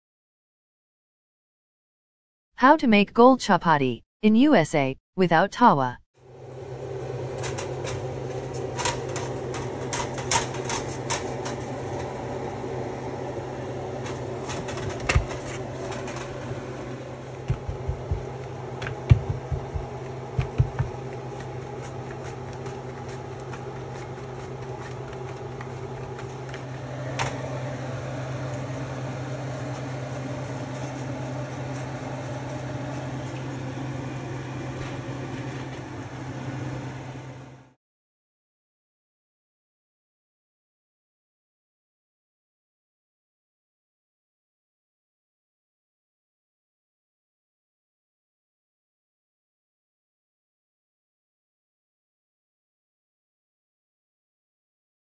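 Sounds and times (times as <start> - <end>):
steady motor hum: 6.3 - 37.6.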